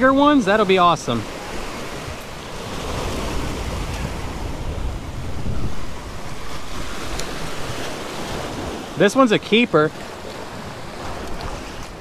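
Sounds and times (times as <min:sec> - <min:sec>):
surf breaking on rocks: 0:00.0 - 0:12.0
wind rumbling on microphone: 0:01.2 - 0:09.0, 0:10.0 - 0:12.0.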